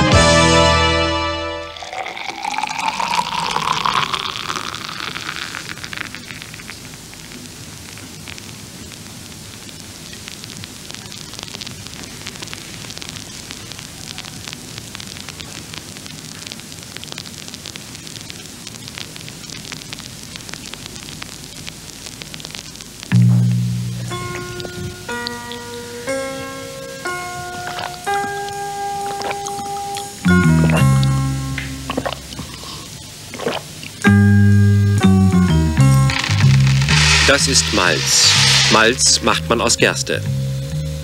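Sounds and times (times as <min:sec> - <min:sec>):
beer pouring into a glass: 0:01.6 - 0:07.3, 0:35.0 - 0:39.2
beer foam fizzing: 0:01.6 - 0:23.0, 0:24.0 - 0:40.2.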